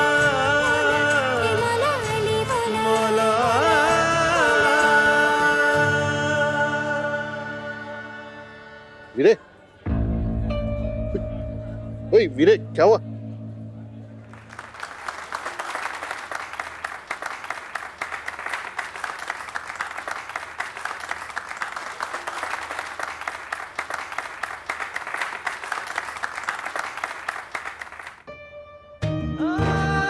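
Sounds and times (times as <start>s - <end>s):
music with sustained tones: 0.0s - 15.0s
audience clapping: 14.2s - 28.3s.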